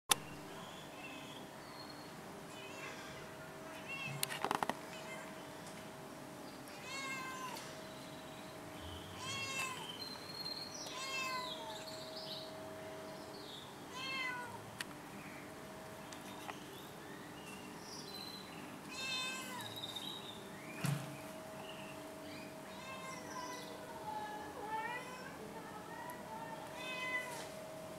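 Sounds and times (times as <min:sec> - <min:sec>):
cat meowing: 0:06.7 - 0:07.6, 0:09.2 - 0:09.9, 0:10.9 - 0:11.8, 0:13.9 - 0:14.6, 0:18.9 - 0:19.8, 0:22.7 - 0:23.7, 0:26.7 - 0:27.5.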